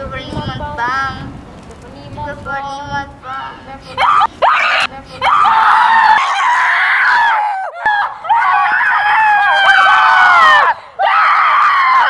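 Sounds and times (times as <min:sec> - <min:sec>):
children screaming: 0:04.0 - 0:12.0.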